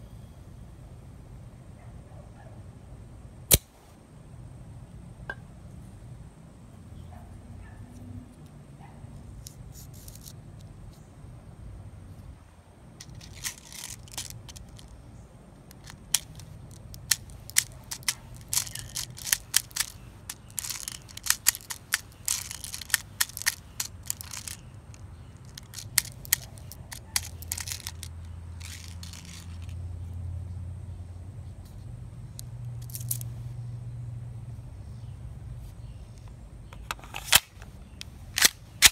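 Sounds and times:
bbs clicking into magazine: 0:13.0 - 0:15.0, 0:15.6 - 0:29.8, 0:32.4 - 0:33.2, 0:36.8 - 0:38.9.

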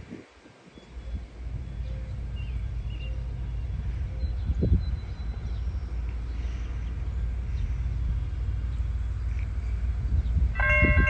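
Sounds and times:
low rumble: 0:00.0 - 0:11.0
railroad crossing bell ringing: 0:10.5 - 0:11.0.

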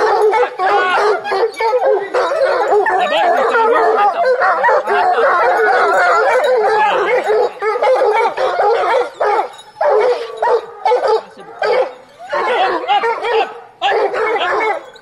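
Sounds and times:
hounds baying and yelping: 0:00.0 - 0:15.0.

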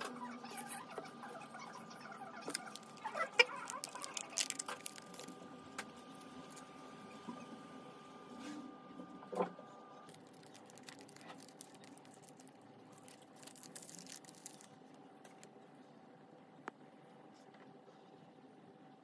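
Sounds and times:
faint steady hum: 0:00.0 - 0:19.0
crinkling paper and plastic: 0:00.7 - 0:06.8, 0:10.0 - 0:15.6.

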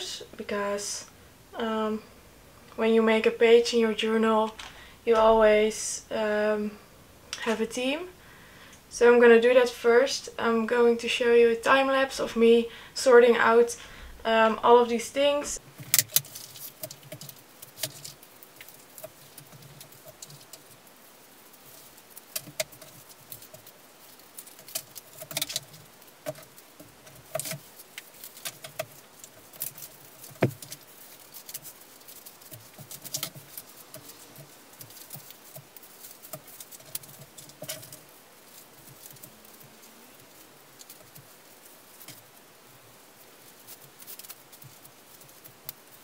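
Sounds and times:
paper and cards rustling and tapping: 0:15.6 - 0:46.0.

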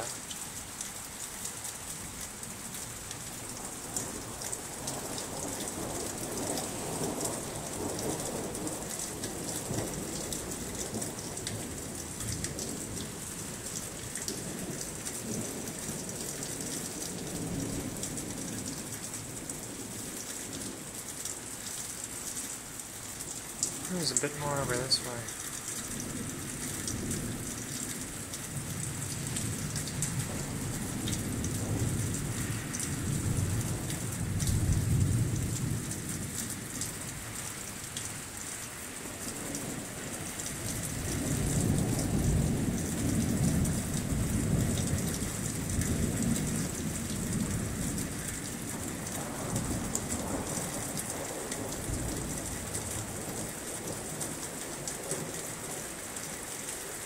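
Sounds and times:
heavy rain hissing and pattering: 0:00.0 - 0:57.0
rolling thunder: 0:28.5 - 0:36.4, 0:41.1 - 0:48.0.

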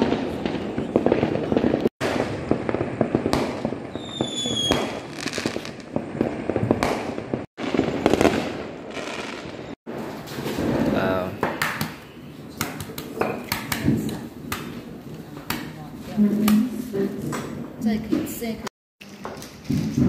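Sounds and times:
firecrackers popping: 0:00.0 - 0:18.4, 0:19.0 - 0:20.0
falling firework whistle: 0:03.9 - 0:05.8.

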